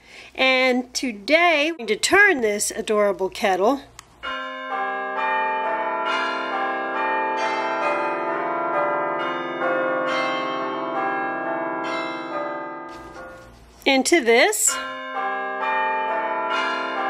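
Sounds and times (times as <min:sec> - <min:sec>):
bells chiming in sequence: 0:04.2 - 0:13.4, 0:14.6 - 0:17.0.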